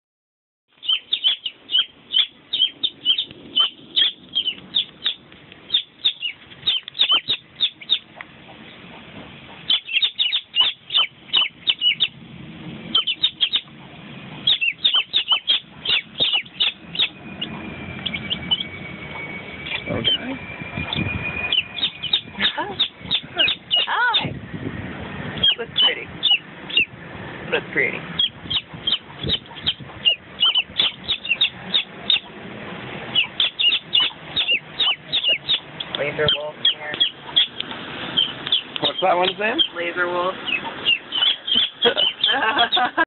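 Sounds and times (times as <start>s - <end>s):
chicks peeping: 0.7s - 12.2s, 12.9s - 24.4s, 25.4s - 27.0s, 28.2s - 32.4s, 33.1s - 42.9s
faint steady high tone: 16.8s - 22.4s.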